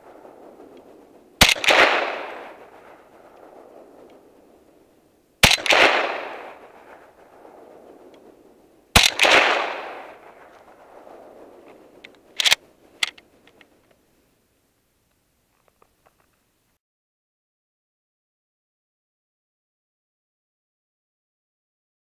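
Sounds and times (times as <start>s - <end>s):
rifle shots echoing: 0.0s - 13.4s.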